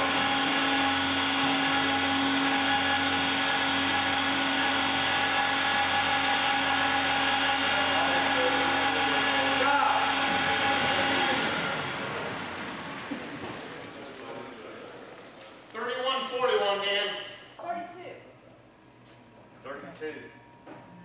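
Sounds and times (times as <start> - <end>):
rotary atomizer whine: 0.0 - 13.2.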